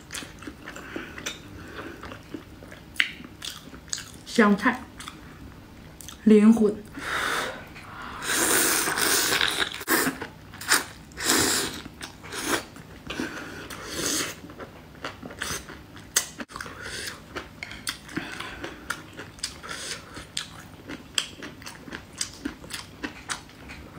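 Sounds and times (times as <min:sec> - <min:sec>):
chewing with wet mouth clicks: 0:00.1 - 0:04.3, 0:05.0 - 0:05.2, 0:06.0 - 0:06.2, 0:14.5 - 0:23.9
person slurping noodles: 0:07.0 - 0:12.6.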